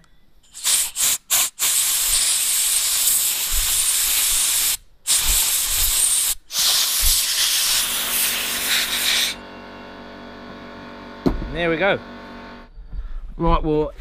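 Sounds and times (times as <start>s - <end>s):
compressed air blow gun hissing: 0.5s - 9.4s.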